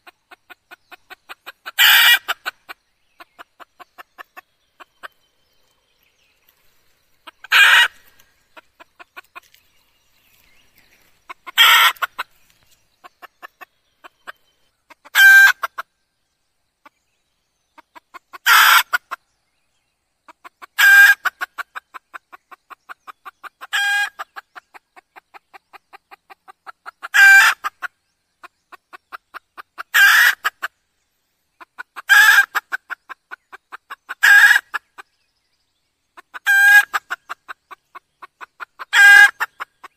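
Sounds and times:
hen loud clucking calls: 0.0 - 5.2, 7.2 - 9.6, 11.2 - 12.4, 13.0 - 15.9, 17.8 - 19.2, 20.3 - 30.7, 31.6 - 35.0, 36.2 - 39.9
soft rapid clucks: 0.0 - 5.8, 8.5 - 9.7, 11.3 - 15.8.

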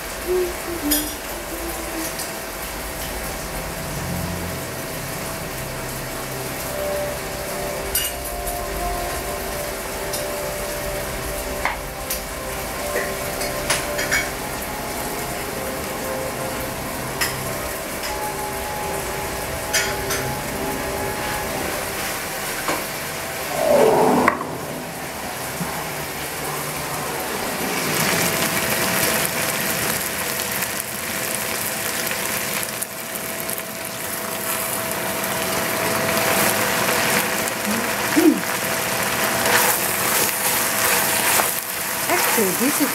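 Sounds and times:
meat sizzling in a pot: 0.0 - 23.6, 27.1 - 42.9.

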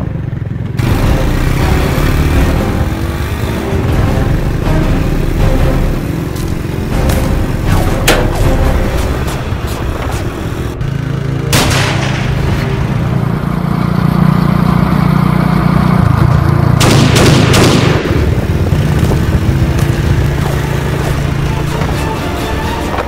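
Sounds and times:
sharp hit: 0.8 - 10.9, 11.5 - 13.6
action film music with heavy bass: 0.8 - 14.0, 16.0 - 23.0
pistol shot effect with ringing tail: 11.5 - 12.7, 16.8 - 18.4.

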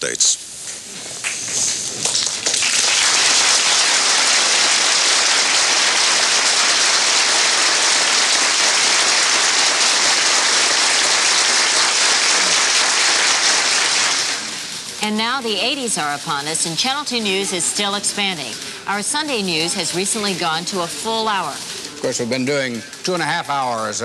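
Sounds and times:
audience applauding: 1.2 - 15.0.

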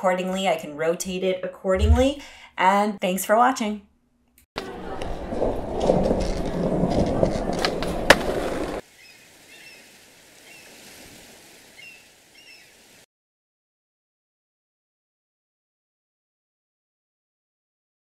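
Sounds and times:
skateboard wheels rolling: 4.6 - 8.8
skateboard clacks: 5.0 - 8.8.

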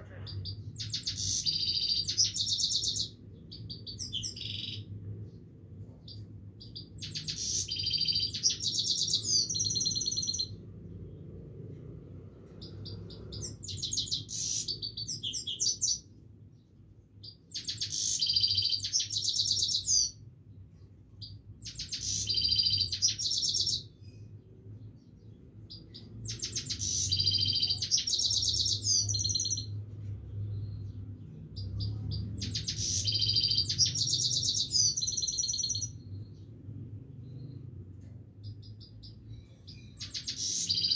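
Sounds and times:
finch twittering song: 0.0 - 5.4, 6.0 - 10.6, 12.4 - 20.2, 21.2 - 36.6, 38.4 - 40.9.

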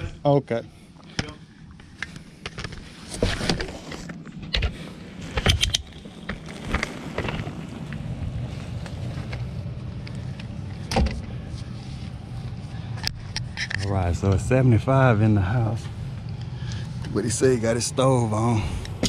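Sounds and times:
furnace blower motor humming: 4.6 - 19.0.

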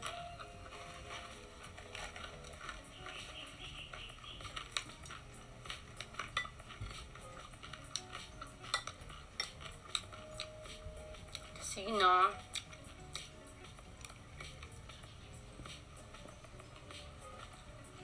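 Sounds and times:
cutlery clinking against glass bowl: 6.0 - 10.5.

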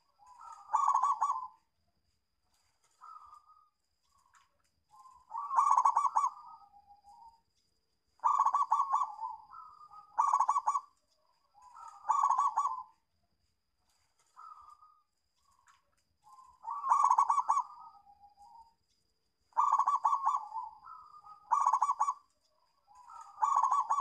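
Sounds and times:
dove cooing: 0.0 - 1.6, 4.9 - 7.3, 8.2 - 10.9, 11.6 - 13.0, 16.3 - 18.7, 19.5 - 24.0.

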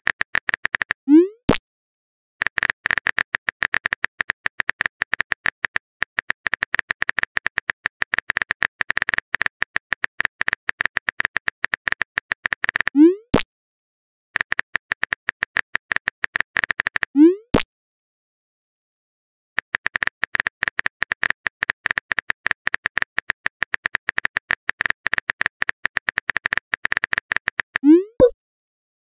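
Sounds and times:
phone keyboard clicks: 2.4 - 12.9, 19.6 - 28.3.

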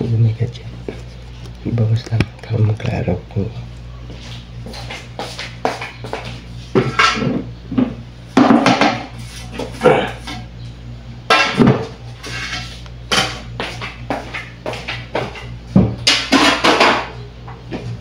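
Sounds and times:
kitchenware clattering: 6.8 - 10.5, 11.3 - 13.4, 14.2 - 17.2.

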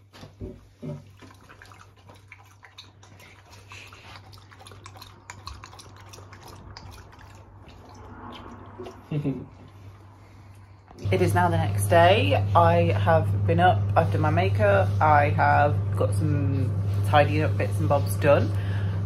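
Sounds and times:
dog lapping water from metal bowl: 0.6 - 9.1.

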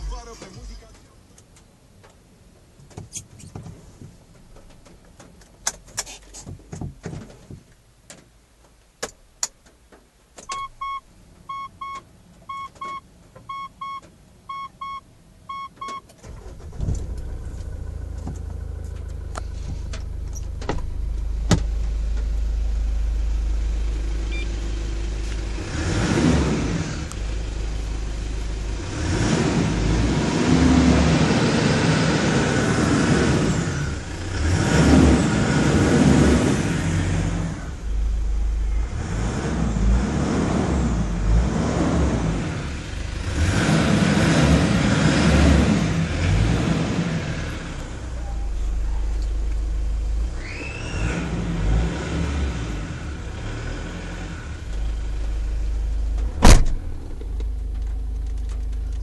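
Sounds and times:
car engine idling: 9.2 - 25.9, 26.6 - 29.1, 35.3 - 39.0, 45.7 - 50.8, 54.5 - 59.0.

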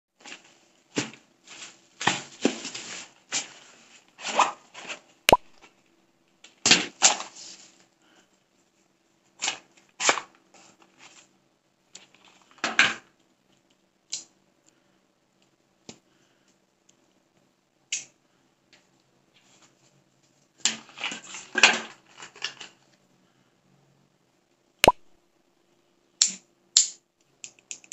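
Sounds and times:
plastic and cardboard crinkling: 0.2 - 4.0
sharp click: 5.3 - 5.6, 24.8 - 25.2.

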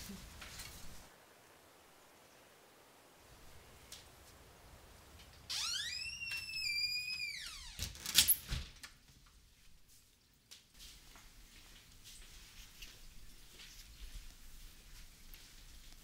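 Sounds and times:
door hinges squealing: 5.5 - 8.4.

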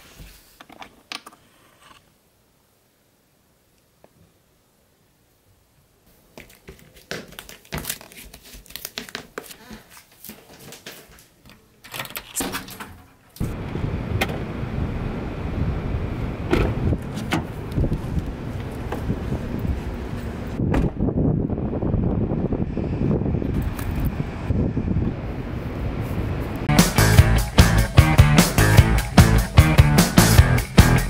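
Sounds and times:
hands clicking and rustling: 6.3 - 13.0
metal doorknob turning: 11.8 - 13.1
wind buffeting microphone: 13.4 - 26.7.

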